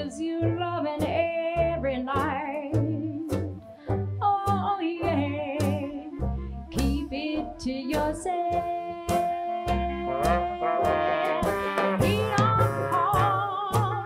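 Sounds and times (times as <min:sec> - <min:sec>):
upright bass notes: 0:00.0 - 0:14.0
woman singing with vibrato: 0:06.8 - 0:14.0
horns: 0:09.7 - 0:14.0.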